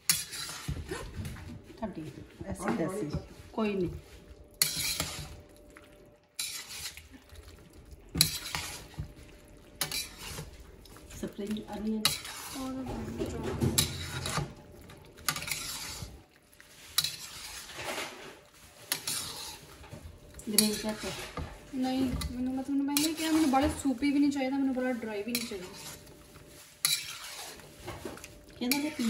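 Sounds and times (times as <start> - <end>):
utensil scraping a steel wok: 0.0 - 0.8, 4.6 - 5.4, 6.4 - 7.0, 8.2 - 9.0, 9.8 - 10.6, 11.3 - 14.6, 15.2 - 29.0
light sizzle: 0.0 - 29.0.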